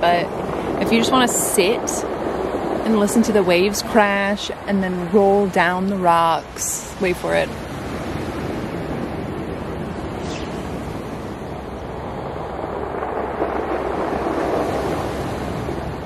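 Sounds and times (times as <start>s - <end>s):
ocean waves on rocky shore: 0.0s - 16.0s.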